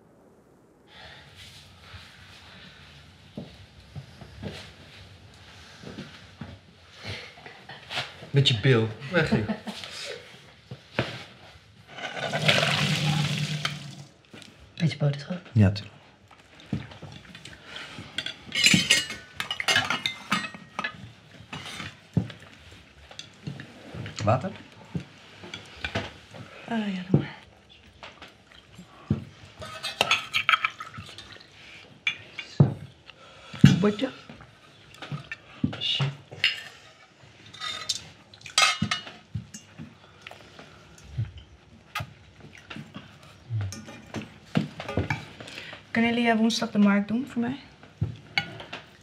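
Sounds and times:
cutlery clinking on plates: 17.8 - 22.3, 29.6 - 31.0, 36.4 - 39.8.

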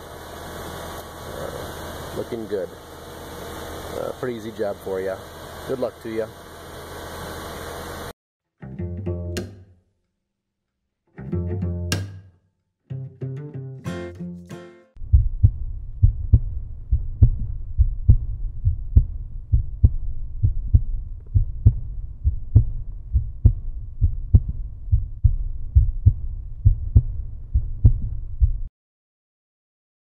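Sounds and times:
heartbeat double thumps: 15.0 - 28.7
low steady rumble: 15.0 - 28.7.

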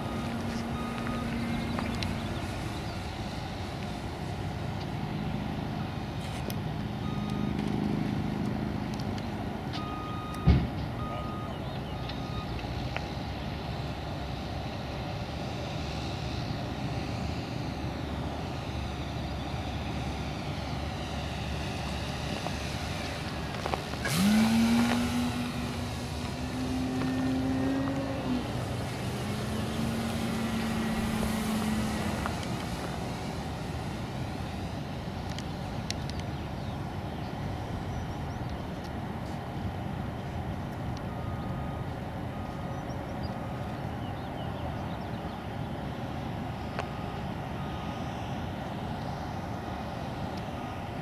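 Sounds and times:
steady background noise: 0.0 - 51.0
model plane propeller hum: 11.8 - 51.0.

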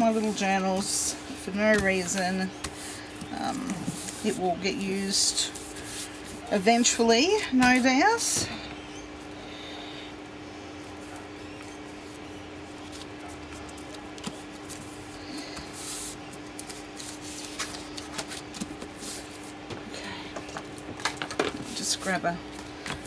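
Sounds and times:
paper rustling: 0.0 - 8.0, 11.0 - 19.6
hands rubbing paper: 0.0 - 8.3, 10.9 - 19.6
faint steady hum: 0.0 - 23.0.

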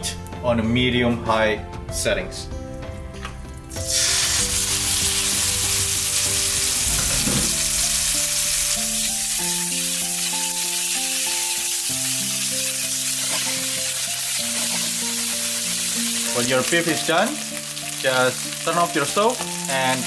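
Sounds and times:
beef sizzling in hot oil: 3.7 - 20.0
spatula stirring in wok: 13.2 - 15.1.

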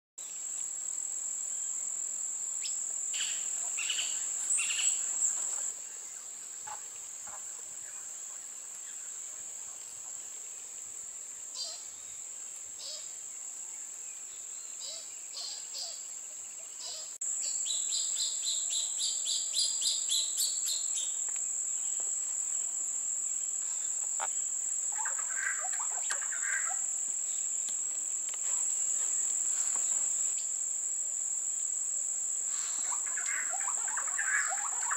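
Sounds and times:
bird calls: 11.6 - 12.0, 23.7 - 26.9, 32.5 - 34.9
high-pitched insect drone: 32.4 - 34.9.

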